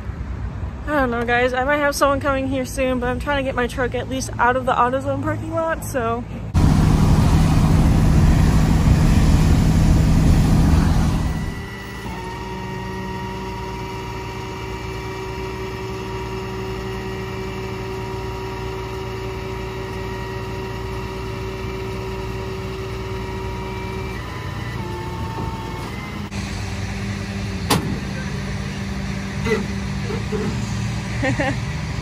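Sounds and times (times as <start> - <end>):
engine idling: 6.5 - 32.0.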